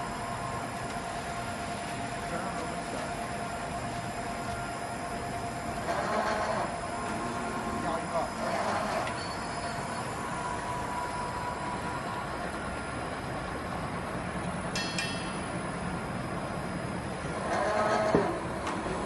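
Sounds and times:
machine spindle cutting metal: 5.7s - 12.2s, 17.2s - 19.0s
short metallic clink: 14.8s - 15.4s.

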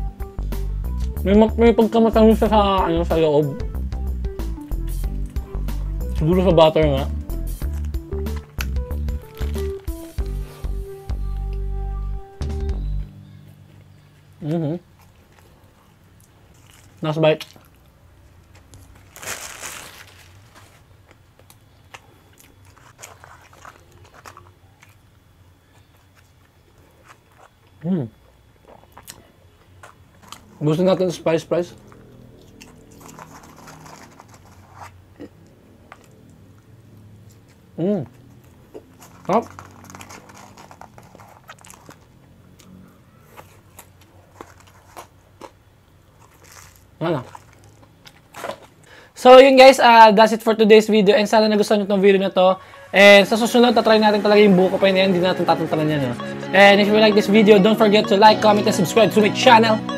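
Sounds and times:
close-up chewing and biting: 7.5s - 10.0s, 14.9s - 19.1s, 21.1s - 27.8s, 28.6s - 30.6s, 31.7s - 48.9s
paper wrapper crumpling: 9.2s - 10.0s, 18.5s - 21.2s, 22.5s - 25.0s, 32.6s - 35.0s, 38.9s - 42.2s, 46.2s - 48.8s.

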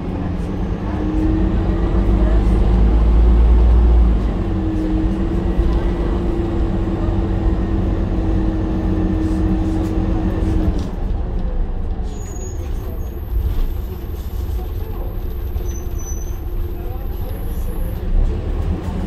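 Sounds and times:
steady engine hum: 0.0s - 12.0s
bus diesel engine running: 0.0s - 19.0s
low road rumble: 0.0s - 19.0s.

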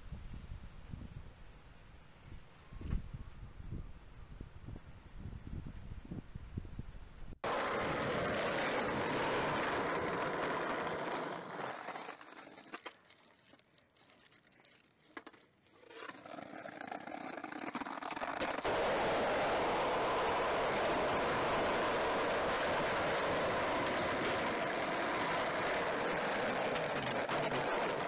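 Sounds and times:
skateboard clacks: 7.4s - 12.9s, 16.0s - 28.0s
skateboard wheels rolling on asphalt: 7.4s - 28.0s.

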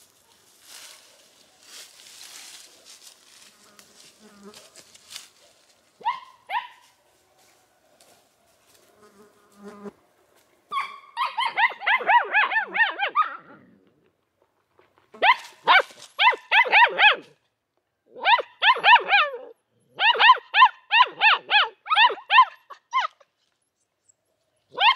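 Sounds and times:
puppies yapping: 10.7s - 13.6s.

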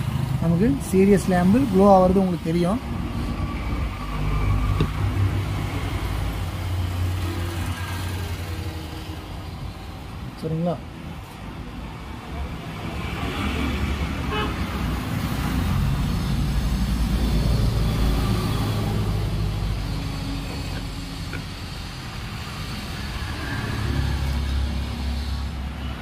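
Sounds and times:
traffic engine rumble: 0.0s - 26.0s
car horn: 14.3s - 14.7s.

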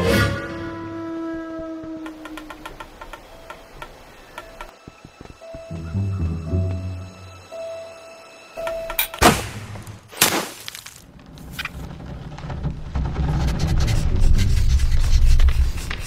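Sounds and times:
low rumbling: 11.1s - 15.6s.

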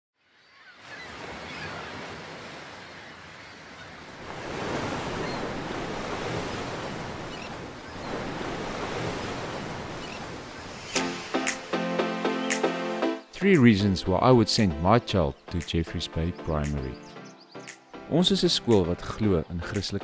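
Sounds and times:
ocean waves rushing: 0.8s - 14.1s.

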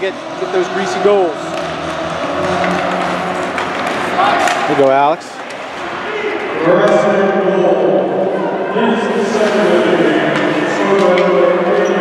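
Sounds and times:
din of rink and spectators: 0.0s - 12.0s.

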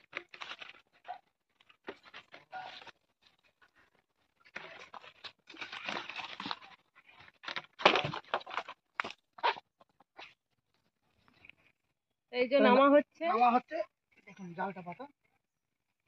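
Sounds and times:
nylon net rustling and crunching: 0.0s - 9.5s.

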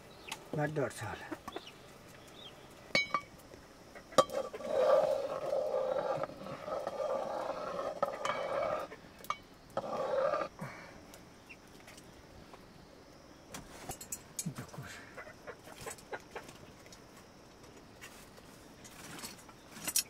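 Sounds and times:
wooden ladle scraping metal pot: 4.2s - 8.9s.

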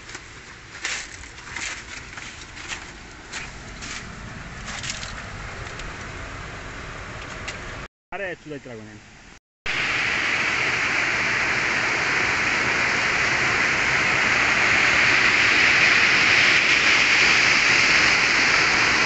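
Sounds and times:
stream rushing over rocks: 9.7s - 19.0s.

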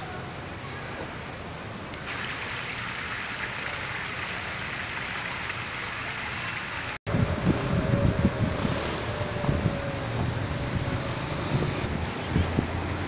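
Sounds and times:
fountain splashing into basin: 2.1s - 7.0s
wind buffeting microphone: 7.1s - 13.0s.

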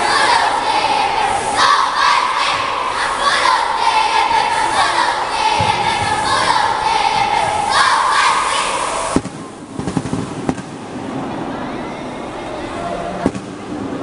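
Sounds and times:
children shouting a cheer: 0.0s - 9.2s.

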